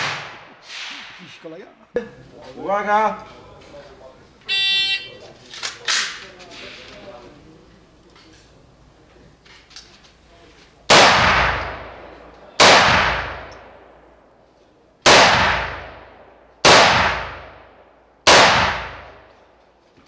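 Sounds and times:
rifle shots: 0.0 - 1.2, 10.9 - 13.9, 15.0 - 19.4.

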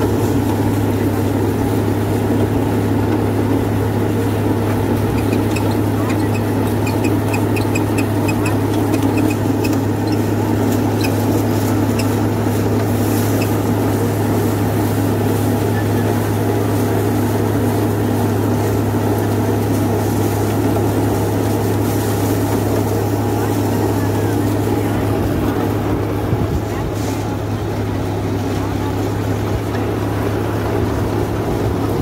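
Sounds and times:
rotavator chopping leaves: 0.0 - 32.0
tractor diesel engine running: 0.0 - 32.0.

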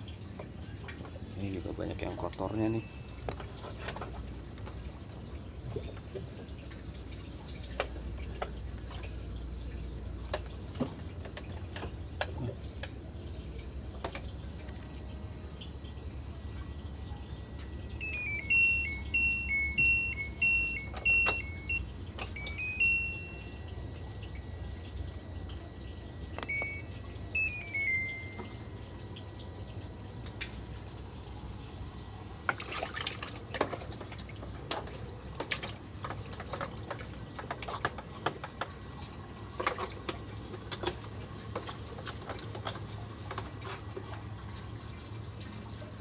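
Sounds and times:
water dripping and trickling: 0.0 - 46.0
short high chirping notes: 18.0 - 21.8, 22.4 - 23.8, 26.4 - 28.7.

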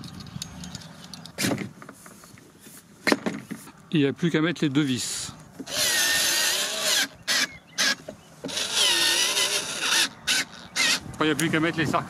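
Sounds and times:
cordless screwdriver whirring: 5.6 - 11.2.

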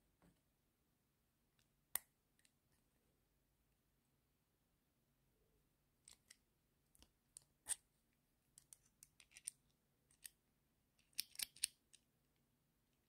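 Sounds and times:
small metal clicks and taps: 11.0 - 12.0.

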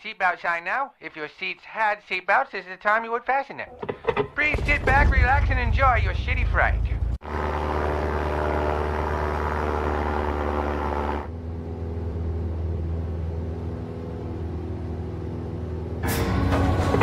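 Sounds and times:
propeller plane engine droning: 5.3 - 16.0.

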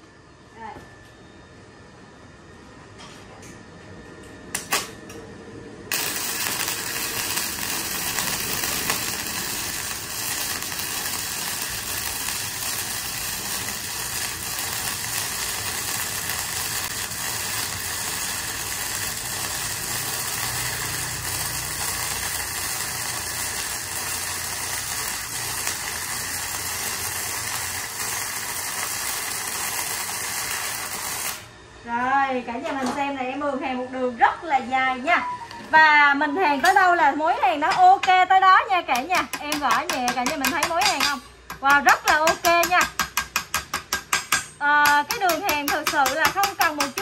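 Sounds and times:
welding arc crackling: 5.9 - 31.5, 38.8 - 44.1, 44.8 - 47.0.

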